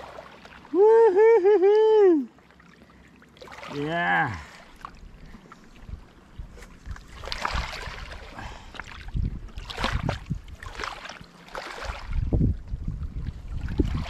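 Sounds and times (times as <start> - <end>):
water lapping at shoreline: 0.0 - 14.0
wind buffeting microphone: 5.1 - 10.8, 11.8 - 14.0.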